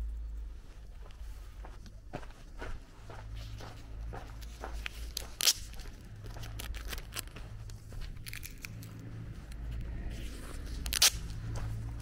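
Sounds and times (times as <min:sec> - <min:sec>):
low steady hum: 0:00.0 - 0:12.0
footsteps crunching on gravel: 0:01.0 - 0:09.3.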